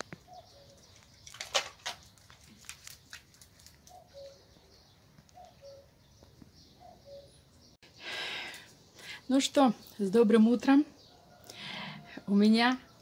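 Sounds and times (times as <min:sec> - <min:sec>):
cuckoo calling: 0:00.0 - 0:01.5, 0:03.8 - 0:07.6.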